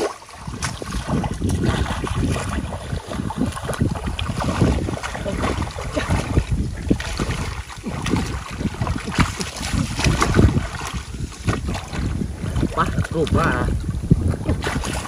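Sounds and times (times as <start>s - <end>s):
water splashing and sloshing: 0.0s - 15.0s
wind buffeting microphone: 0.0s - 15.0s.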